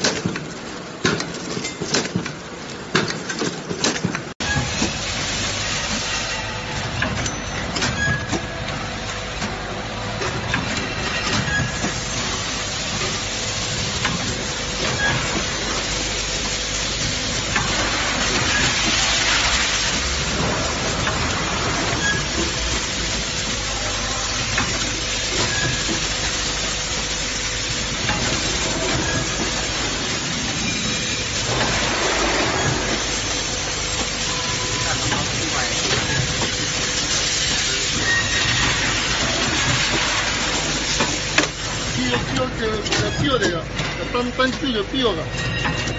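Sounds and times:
machine clicks and clatter: 0:00.0 - 0:05.0
packing machine hum and hiss: 0:00.0 - 0:45.9.

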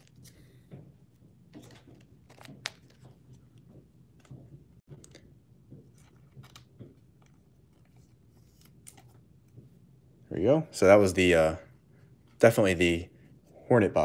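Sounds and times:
card sleeve clicks and rustles: 0:01.5 - 0:03.4, 0:05.8 - 0:09.2.

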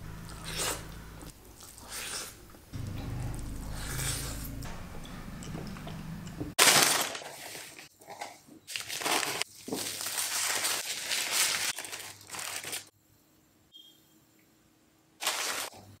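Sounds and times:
paper wrapping crinkling: 0:06.6 - 0:07.9, 0:08.7 - 0:12.9, 0:15.2 - 0:15.8.

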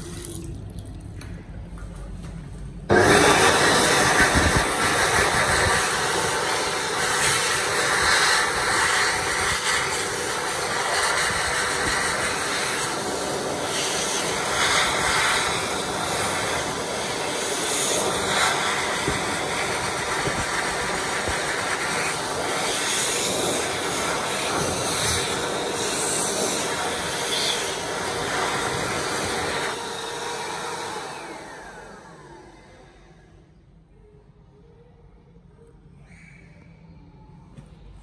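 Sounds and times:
hand dryer blowing: 0:02.9 - 0:33.0.

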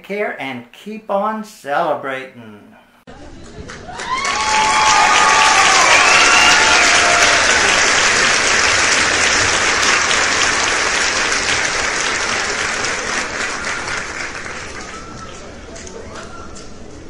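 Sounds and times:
crowd applauding: 0:03.4 - 0:16.6.

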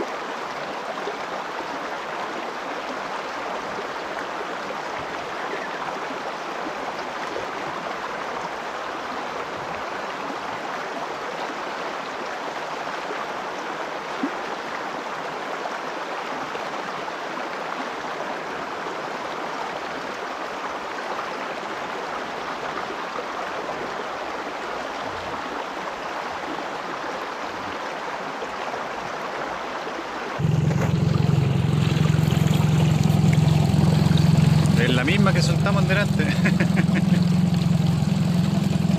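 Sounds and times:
river water rushing over stones: 0:00.0 - 0:38.9
boat motor humming: 0:30.4 - 0:38.9.

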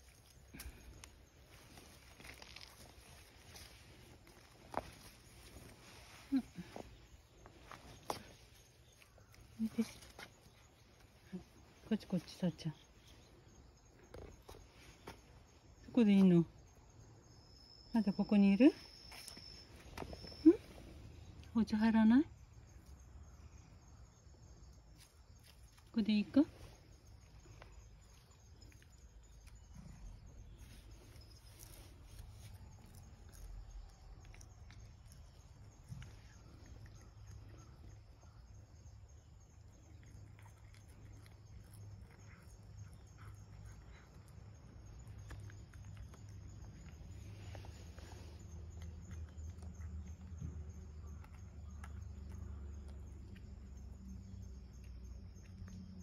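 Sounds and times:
cat chewing crunchy food: 0:39.7 - 0:53.8.

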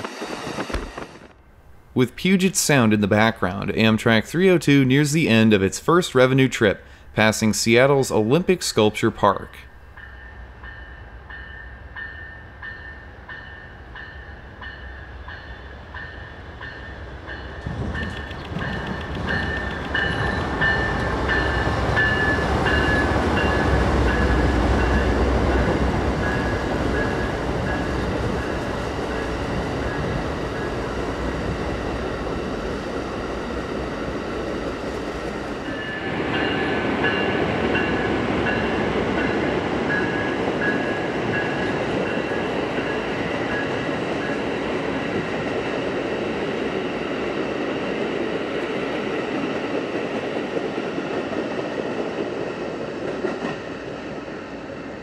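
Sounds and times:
train wheels on rail: 0:00.0 - 0:02.0, 0:09.8 - 0:55.0
locomotive engine rumbling: 0:14.8 - 0:45.5.

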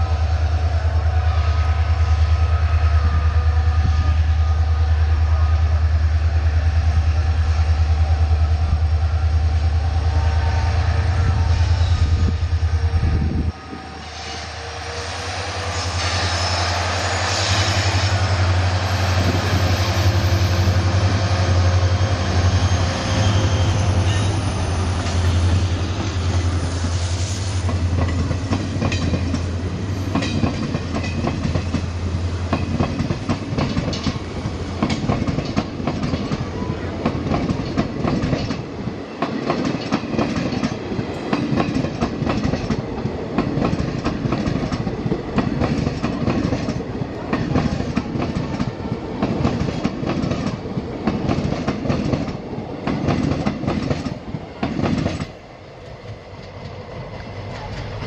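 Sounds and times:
diesel locomotive drone: 0:00.0 - 0:58.0
train wheels clattering over rail joints: 0:27.6 - 0:36.4, 0:37.0 - 0:55.4.

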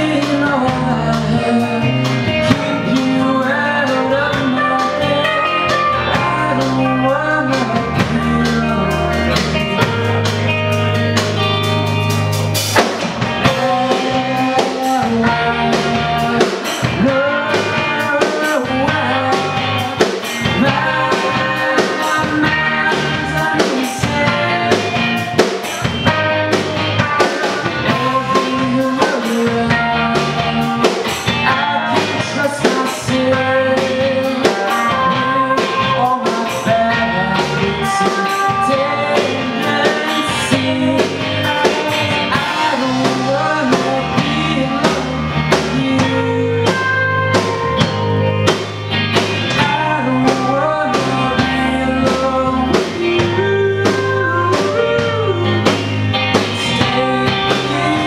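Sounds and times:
drum kit beat: 0:00.0 - 0:58.0
electric guitars: 0:00.0 - 0:58.0.

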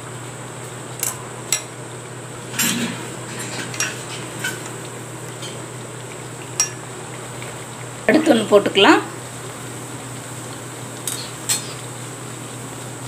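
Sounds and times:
frying oil sizzling: 0:00.0 - 0:13.0.

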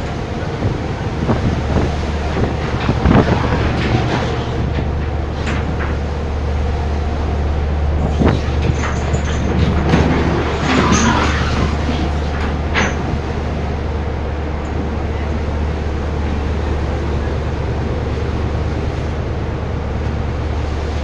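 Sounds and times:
ship machinery drone: 0:00.0 - 0:21.0
deck work knocks and clanks: 0:08.2 - 0:13.2.

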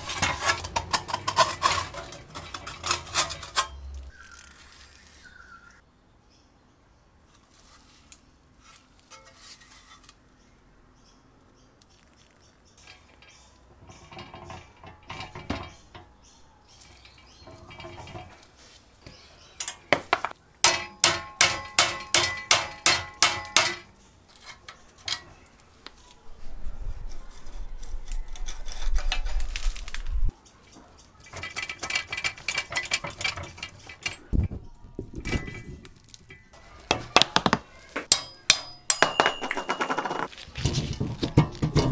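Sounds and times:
ringing metal taps: 0:12.8 - 0:16.4, 0:35.2 - 0:40.3
metal clinks: 0:38.1 - 0:40.3.

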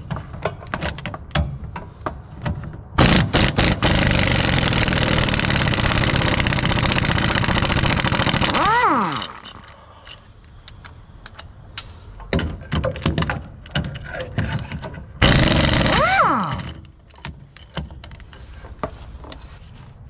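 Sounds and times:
pneumatic impact wrench: 0:03.0 - 0:09.6, 0:15.2 - 0:16.9
metallic clicks and knocks: 0:16.7 - 0:19.4.

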